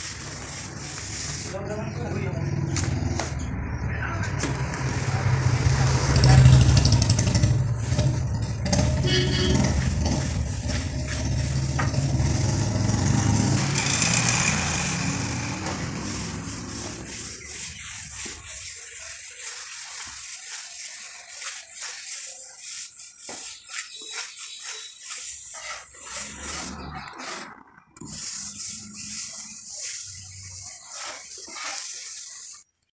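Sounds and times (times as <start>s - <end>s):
plastering float scraping cement: 0.0s - 32.9s
vehicle engine rumbling: 0.5s - 17.4s.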